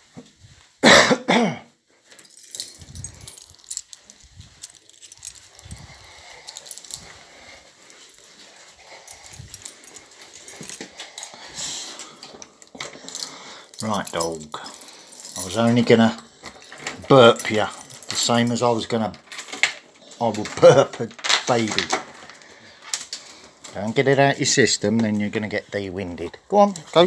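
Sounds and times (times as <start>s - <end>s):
handling thumps and rustling: 2.1s - 8.4s, 9.0s - 10.9s, 12.3s - 18.6s.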